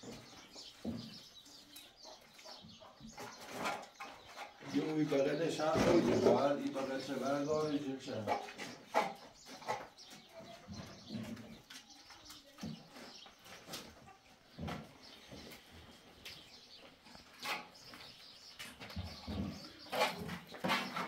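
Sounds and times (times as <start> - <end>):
trowel scraping wall: 19.4 - 21.0.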